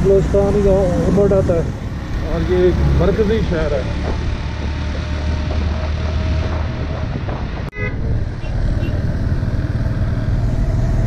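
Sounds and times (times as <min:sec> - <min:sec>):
road and wind noise: 0:00.0 - 0:11.0
vehicle horn toot: 0:07.7 - 0:09.0.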